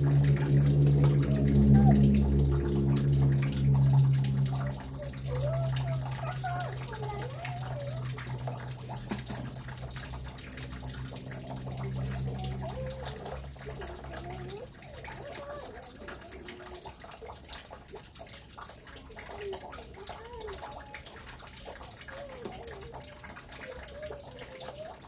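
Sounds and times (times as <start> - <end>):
steady low hum: 0.0 - 6.8
faint wavering voices: 0.0 - 25.0.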